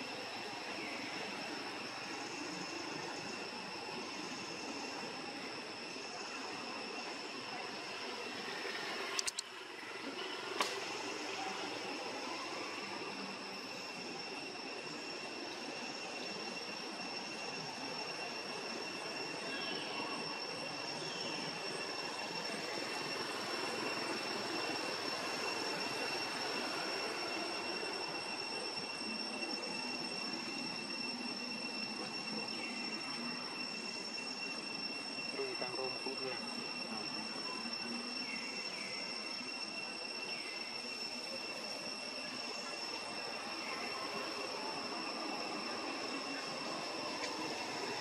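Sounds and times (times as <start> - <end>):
high insect drone: 0.0 - 48.0
high steady whines: 0.0 - 48.0
steady hiss: 0.0 - 48.0
sharp clicks: 9.2 - 9.5.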